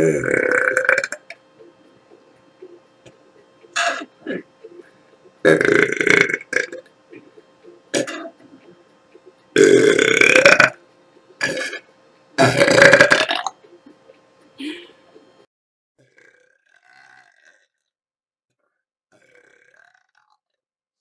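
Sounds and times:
woman belching loudly: 5.4 - 6.8, 8.0 - 8.3, 9.6 - 10.8, 12.4 - 13.6.

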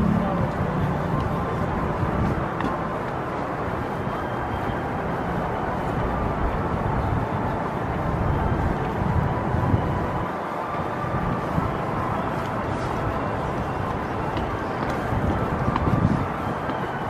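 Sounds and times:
low outdoor rumble: 0.0 - 2.8.

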